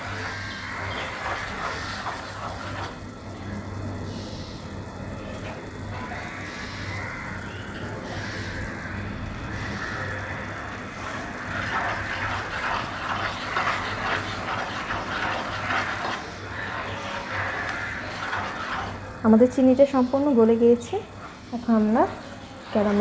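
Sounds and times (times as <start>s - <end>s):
low steady hum: 0.0s - 23.0s
sugar syrup bubbling crackle: 0.0s - 23.0s
wooden spatula stirring: 11.5s - 19.1s.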